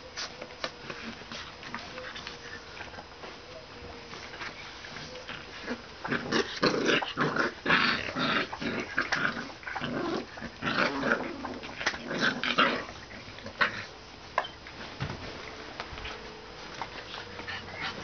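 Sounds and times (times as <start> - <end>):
puppies growling: 3.9 - 14.2, 17.0 - 18.0.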